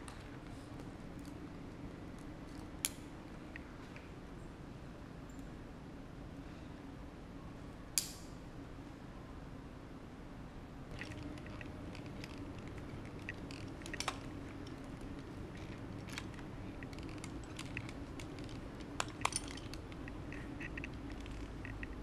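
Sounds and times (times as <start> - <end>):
steady low hum: 0.0 - 22.0
metal climbing gear clinking: 10.9 - 22.0.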